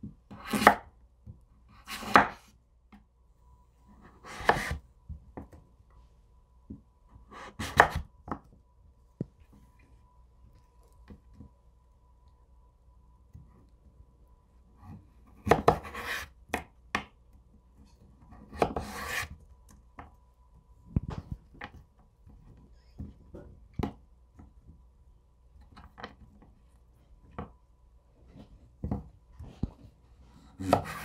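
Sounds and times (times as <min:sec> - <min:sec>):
knife scraping across cutting board: 0:03.9 - 0:04.8, 0:15.6 - 0:16.3, 0:18.4 - 0:19.4, 0:29.4 - 0:31.0.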